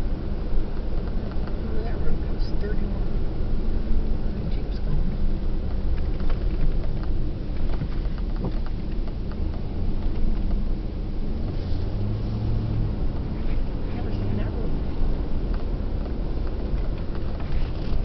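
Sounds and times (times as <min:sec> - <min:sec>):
engine and road noise rumble: 0:00.0 - 0:18.0
low hum: 0:00.0 - 0:18.0.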